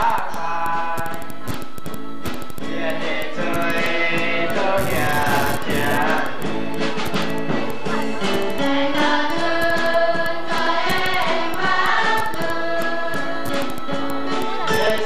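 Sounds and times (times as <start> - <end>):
mixed choir singing: 8.6 - 15.0.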